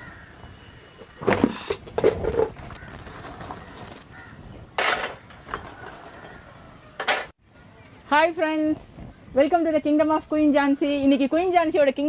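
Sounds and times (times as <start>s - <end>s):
plastic tarpaulin rustling: 2.0s - 6.2s.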